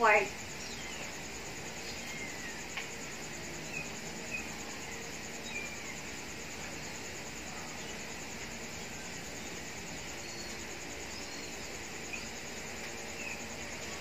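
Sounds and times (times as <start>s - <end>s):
high-pitched insect trill: 0.0s - 14.0s
faint bird-like chirps: 0.3s - 6.2s.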